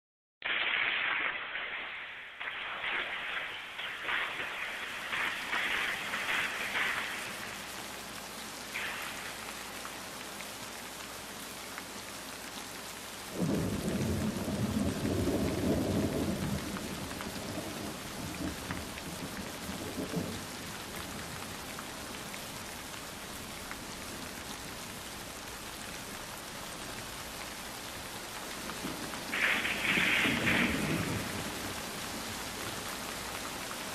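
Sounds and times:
steady rain: 0:00.4 - 0:33.9
low rolling thunder: 0:13.4 - 0:20.4, 0:28.8 - 0:31.9.

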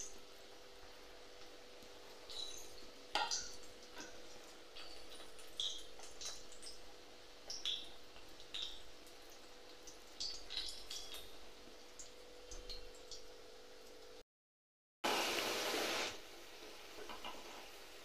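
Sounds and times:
batter sizzling in hot oil: 0:00.0 - 0:13.2, 0:15.1 - 0:18.0.

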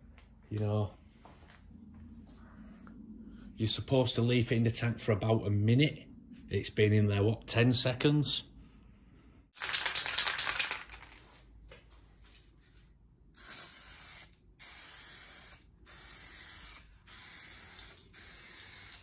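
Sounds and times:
aerosol can spraying: 0:13.4 - 0:19.0.

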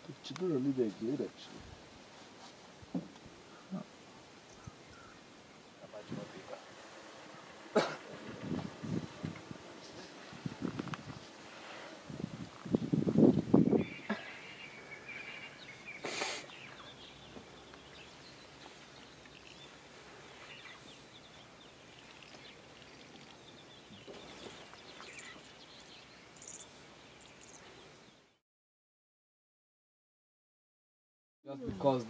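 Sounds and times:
faint bush ambience: 0:00.0 - 0:28.4, 0:31.5 - 0:32.0
bird chirps and calls: 0:12.6 - 0:28.3.

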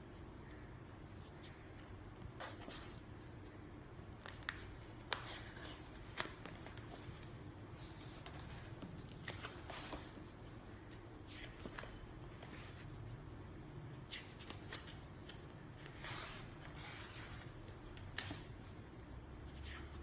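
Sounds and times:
paper pages rustling: 0:01.3 - 0:13.1.

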